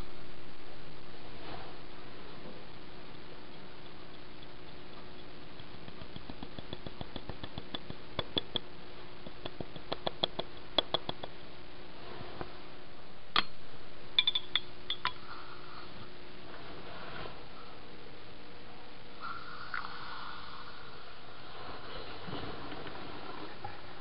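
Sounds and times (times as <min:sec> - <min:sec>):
steady hiss: 0:00.0 - 0:24.0
small irregular ticks and clicks: 0:02.7 - 0:11.5, 0:19.6 - 0:20.1
ringing clinks of glass or metal: 0:14.2 - 0:15.2.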